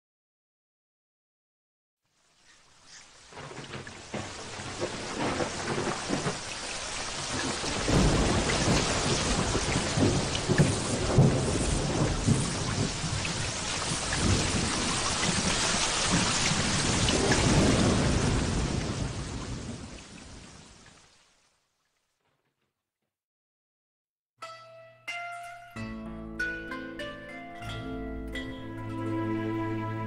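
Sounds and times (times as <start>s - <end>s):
heavy rain hissing: 2.1s - 20.8s
low rolling thunder: 3.3s - 20.6s.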